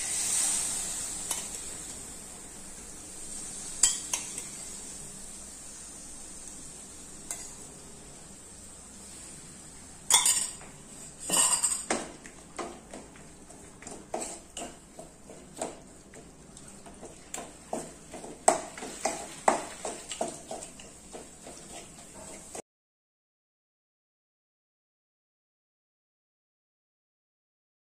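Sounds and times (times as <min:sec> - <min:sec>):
wooden spatula scraping a pan: 0:10.9 - 0:22.6.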